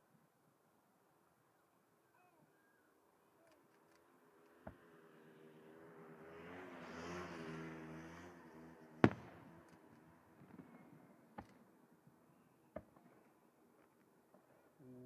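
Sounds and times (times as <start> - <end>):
fireworks bang: 9.0 - 9.6.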